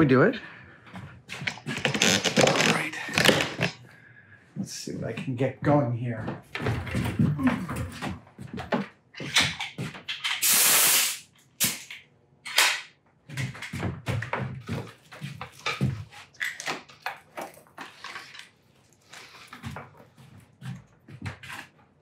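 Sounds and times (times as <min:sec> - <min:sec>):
cardboard panels crinkling and rustling: 0:01.3 - 0:03.8, 0:13.4 - 0:22.0.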